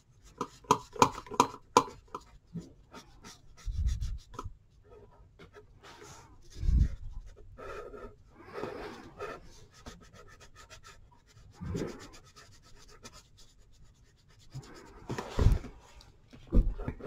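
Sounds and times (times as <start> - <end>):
pen scratching on paper: 0.2 - 2.3, 2.9 - 15.6
dull thumps: 15.0 - 17.0.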